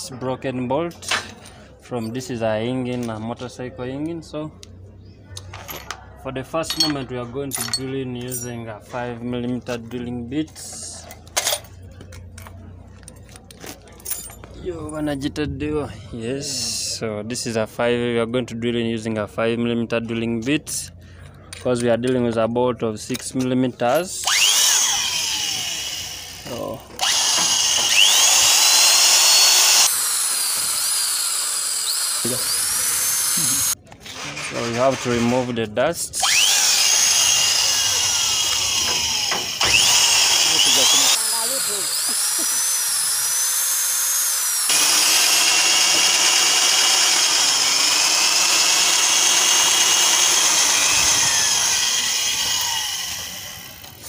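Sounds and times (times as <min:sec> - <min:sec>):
electric drill whining: 0:24.2 - 0:33.8, 0:36.2 - 0:54.0.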